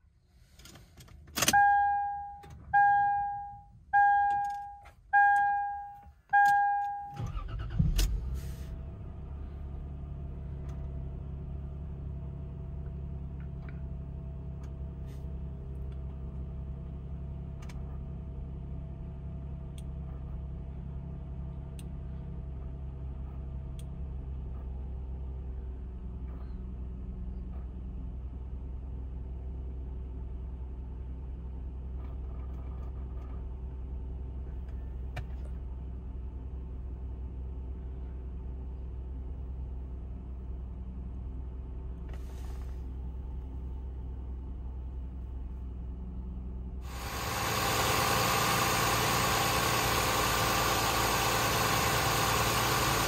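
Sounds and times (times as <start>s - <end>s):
dashboard warning chime: 1.4s - 7.5s
faint steady tone: 1.6s - 7.2s
car engine cranking and starting: 4.2s - 18.3s, 46.8s - 53.0s
car engine idling: 46.7s - 53.0s.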